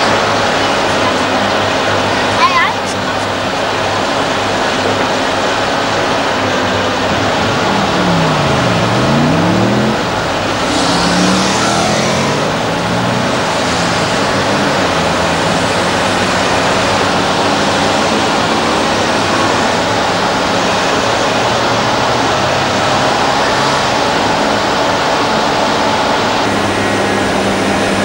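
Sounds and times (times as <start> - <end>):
excavator diesel engine under load: 0.0 - 28.0
hydraulic hissing rush: 3.0 - 18.7.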